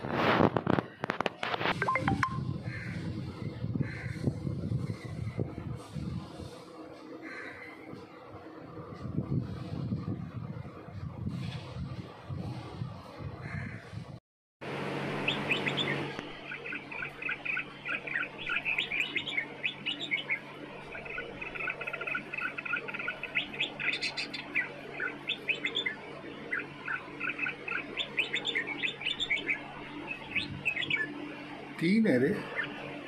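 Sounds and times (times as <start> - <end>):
birds chirping: 15.1 - 33.0.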